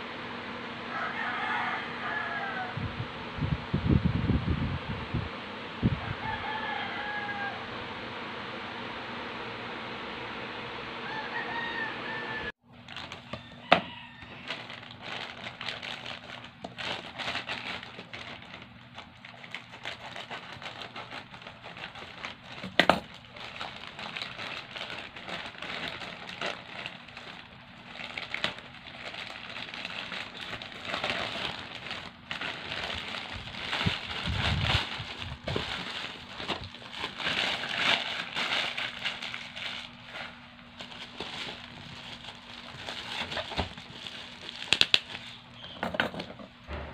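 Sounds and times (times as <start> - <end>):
plastic package crinkling: 12.7 - 45.7.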